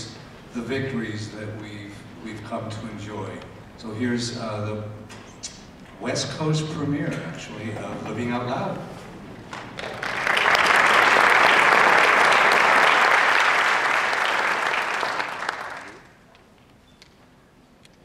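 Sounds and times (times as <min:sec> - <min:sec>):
audience applauding: 0:09.5 - 0:16.3.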